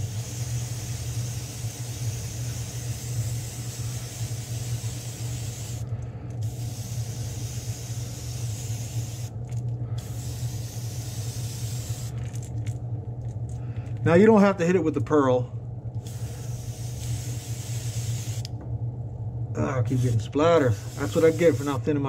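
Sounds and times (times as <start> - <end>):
airbrush spraying hiss: 0.0 - 9.3, 10.0 - 12.2, 16.0 - 18.5, 19.9 - 21.8
filter fan hum: 0.0 - 22.0.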